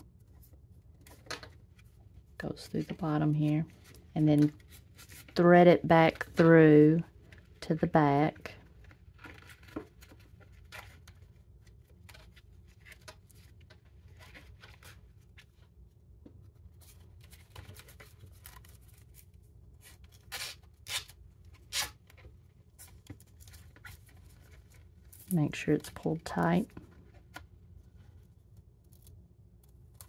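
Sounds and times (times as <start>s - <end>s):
straps rustling against plastic sheath: 16.9s - 25.6s.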